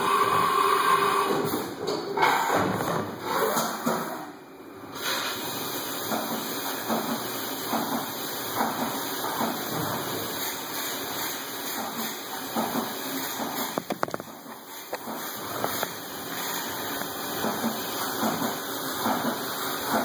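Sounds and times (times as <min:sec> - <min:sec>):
coolant spraying on milling machine: 0:05.0 - 0:20.0.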